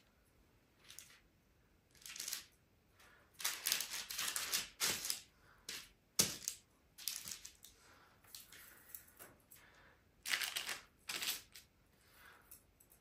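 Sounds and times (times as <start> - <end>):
baking paper crinkling: 3.4 - 5.3.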